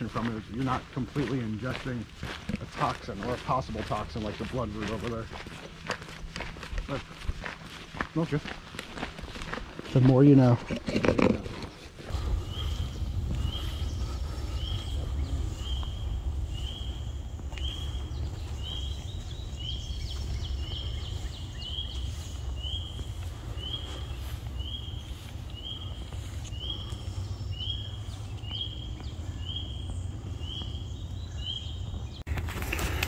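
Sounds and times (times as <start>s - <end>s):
steady low rumble: 12.1s - 33.0s.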